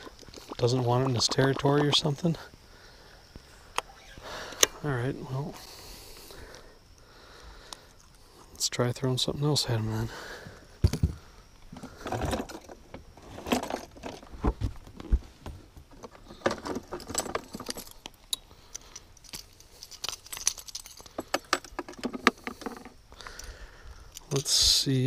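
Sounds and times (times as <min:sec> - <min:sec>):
metal hooks clinking and rattling: 0:16.3 - 0:22.9.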